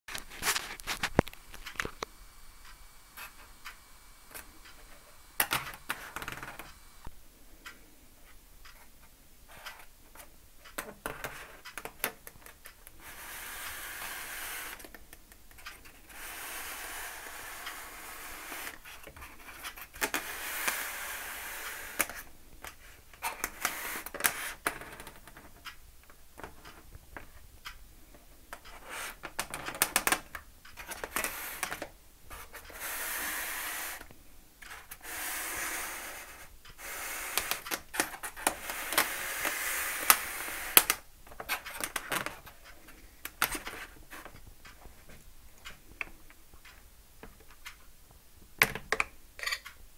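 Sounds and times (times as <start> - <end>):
rustling and scraping on paper: 0.1 - 2.0, 15.6 - 25.5.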